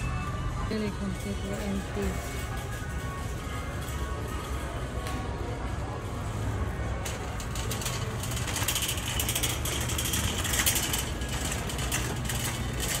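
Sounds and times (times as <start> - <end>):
cart wheels rumbling: 0.0 - 13.0
wire basket rattling: 7.0 - 13.0.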